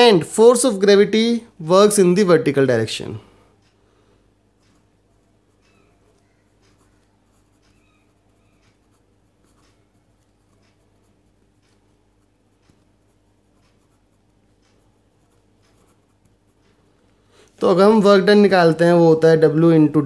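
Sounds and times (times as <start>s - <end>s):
pen scratching on paper: 4.7s - 16.6s.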